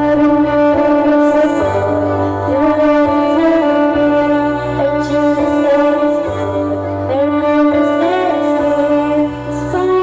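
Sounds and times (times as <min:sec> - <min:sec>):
instrumental backing with low bass: 0:00.0 - 0:10.0.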